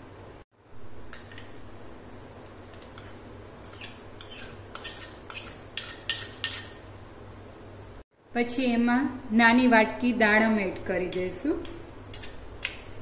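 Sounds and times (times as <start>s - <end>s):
metal spoon clinking on glass bowl: 1.1s - 1.6s, 2.4s - 6.9s.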